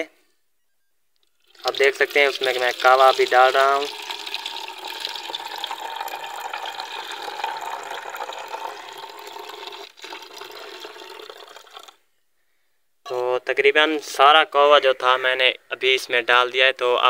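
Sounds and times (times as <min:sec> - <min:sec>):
liquid pouring into plastic bottle: 0:01.3 - 0:12.0.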